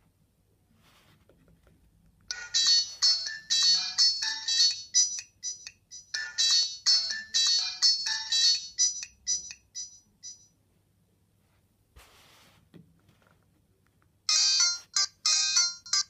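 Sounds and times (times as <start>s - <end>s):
phone ringtone melody: 2.3s - 10.5s, 14.3s - 16.0s.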